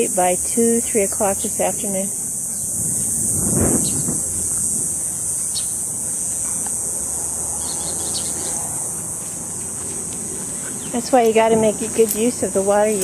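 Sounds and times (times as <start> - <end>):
high-pitched insect chorus: 0.0 - 13.0
faint bird chirps: 7.6 - 8.6.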